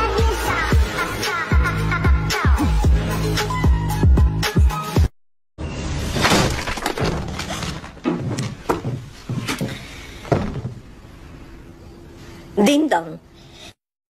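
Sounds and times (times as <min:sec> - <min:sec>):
loud crash and clatter: 0:05.9 - 0:08.2
sharp knocks and thuds: 0:06.2 - 0:10.9.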